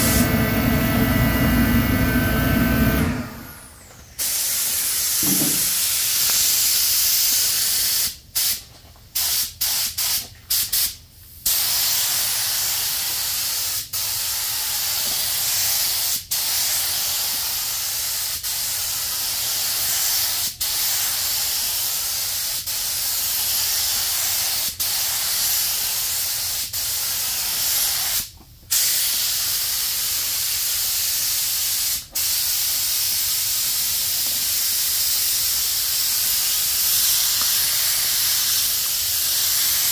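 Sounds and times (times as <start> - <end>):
spray gun hissing: 11.5 - 39.9.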